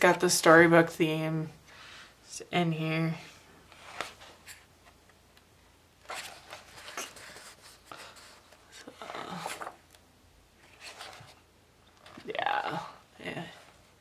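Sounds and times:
paper pages rustling: 0:03.7 - 0:05.1, 0:06.0 - 0:10.0, 0:10.6 - 0:12.3.

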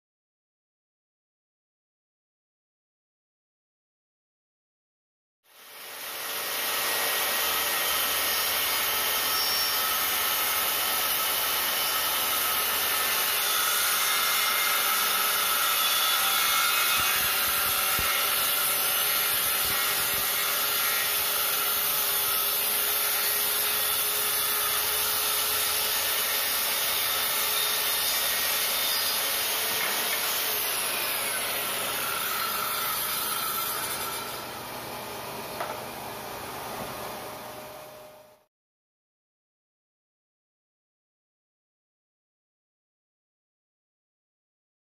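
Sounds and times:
circular saw cutting plywood: 0:05.5 - 0:38.5.

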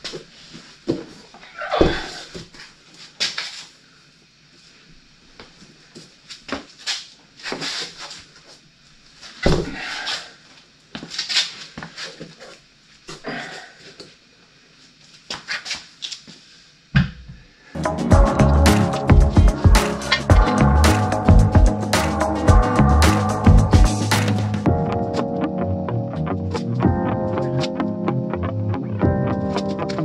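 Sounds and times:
rubber tire scuffing: 0:06.3 - 0:08.5.

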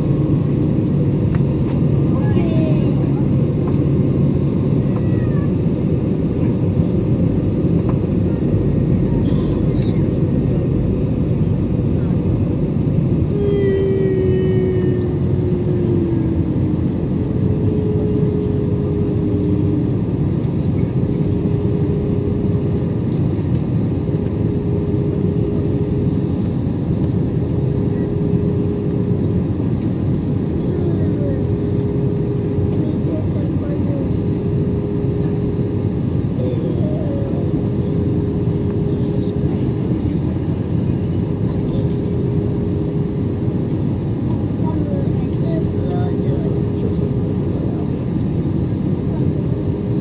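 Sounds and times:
jet engines and airflow rushing: 0:00.0 - 0:50.0
humming tone: 0:13.1 - 0:22.6.

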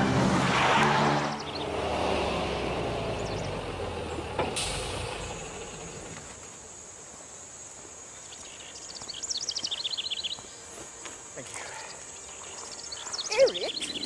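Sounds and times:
van engine rumbling: 0:00.0 - 0:06.9
air brake click and hiss: 0:04.4 - 0:05.2
high insect drone: 0:04.8 - 0:14.0
faint bird chirps: 0:11.6 - 0:14.0.

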